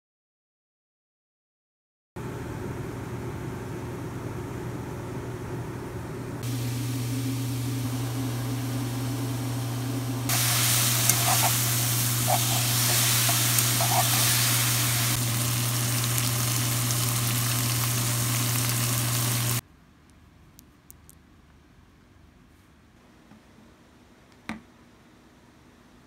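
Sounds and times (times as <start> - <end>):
microwave oven humming: 2.2 - 19.6
food sizzling in a frying pan: 10.3 - 19.6.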